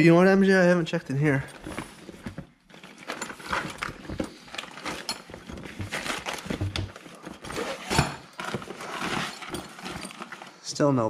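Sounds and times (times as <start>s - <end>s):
rummaging knocks and clatters: 1.1s - 10.7s.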